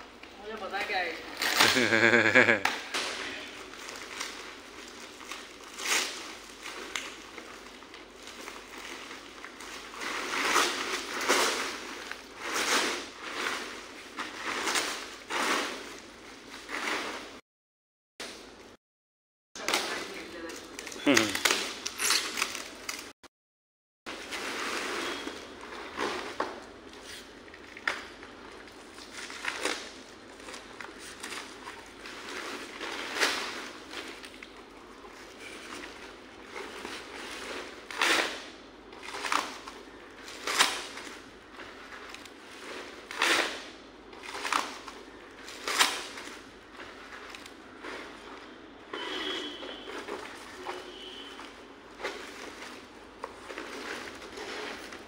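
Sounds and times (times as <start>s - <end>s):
plastic and foam crinkling: 0.1s - 17.4s, 24.1s - 55.0s
paper crackle: 1.3s - 2.6s.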